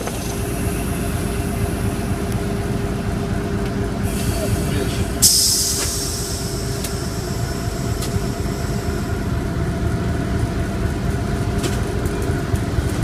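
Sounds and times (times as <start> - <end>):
diesel locomotive engine running: 0.0 - 13.0
air hissing: 4.0 - 9.3.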